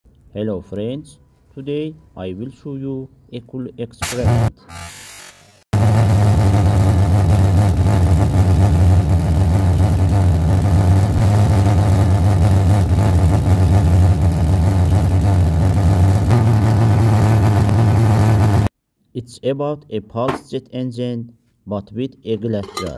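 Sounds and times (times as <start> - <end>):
pulse jet low buzz: 5.8 - 18.7.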